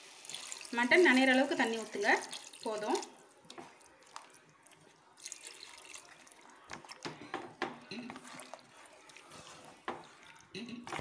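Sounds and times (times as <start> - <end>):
liquid sloshing: 3.7 - 11.0.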